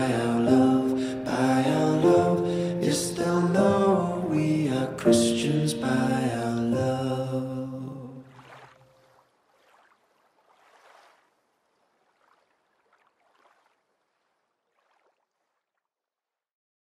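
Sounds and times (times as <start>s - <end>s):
small waves lapping: 7.6s - 15.8s.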